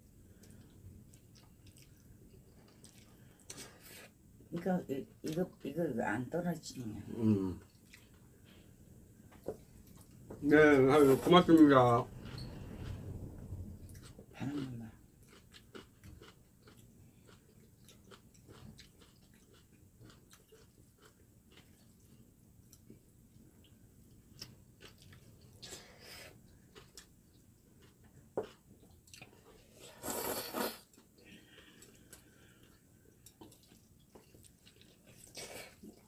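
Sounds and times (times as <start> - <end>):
quiet chewing: 0.0 - 5.7, 7.3 - 10.4, 11.6 - 36.0
slurping noodles: 29.8 - 31.0.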